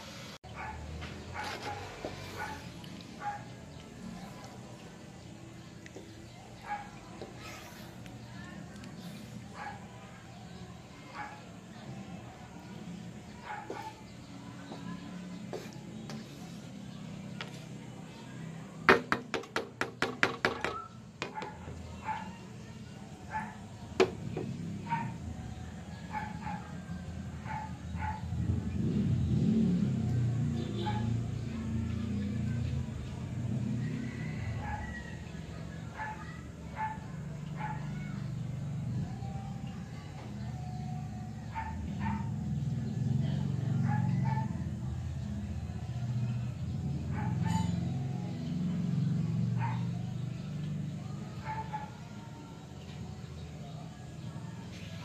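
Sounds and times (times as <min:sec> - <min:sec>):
dog barking: 0:00.5 - 0:03.6, 0:06.6 - 0:07.5, 0:09.5 - 0:10.1, 0:11.0 - 0:11.5, 0:13.3 - 0:14.0, 0:20.5 - 0:22.5, 0:23.3 - 0:23.7, 0:24.8 - 0:25.2, 0:26.1 - 0:28.4, 0:30.6 - 0:31.3, 0:34.0 - 0:35.2, 0:35.8 - 0:38.2, 0:41.4 - 0:42.4, 0:43.8 - 0:44.6, 0:47.1 - 0:47.7, 0:49.6 - 0:50.0, 0:51.4 - 0:52.0.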